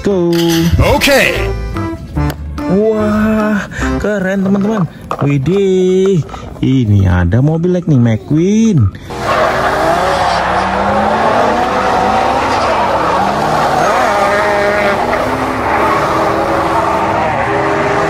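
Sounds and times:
race car engines revving: 8.9 - 18.0
tyres skidding and squealing: 9.0 - 18.0.

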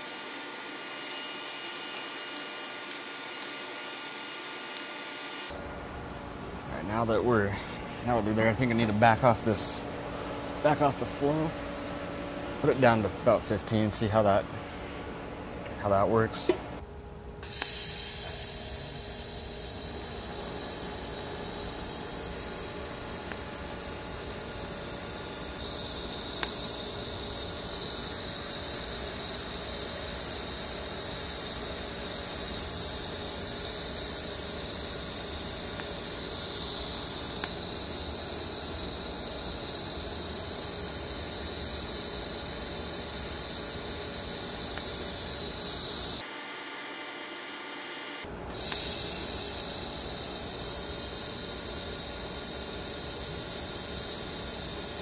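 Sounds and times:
welding arc hissing: 0.0 - 5.6, 17.4 - 46.2, 48.5 - 55.0.

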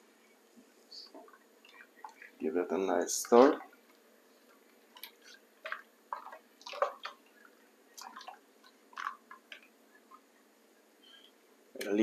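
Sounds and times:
spoon stirring liquid in pot: 3.3 - 10.3.

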